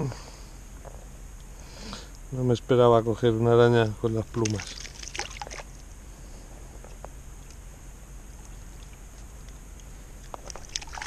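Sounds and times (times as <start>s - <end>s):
water lapping against kayak hull: 4.3s - 5.8s, 10.3s - 11.0s.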